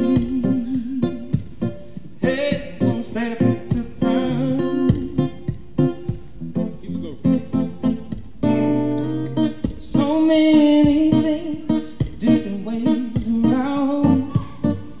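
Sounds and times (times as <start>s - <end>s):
man singing wordless notes: 0.0s - 1.5s, 2.2s - 5.4s, 9.8s - 15.0s
acoustic guitar playing: 0.0s - 15.0s.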